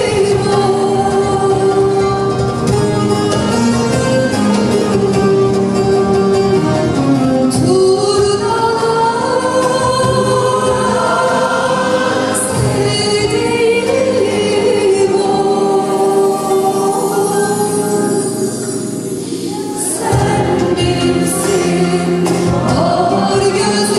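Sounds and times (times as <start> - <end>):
woman singing into a microphone: 0.0 - 2.8, 7.5 - 23.9
choir singing along: 8.5 - 23.9.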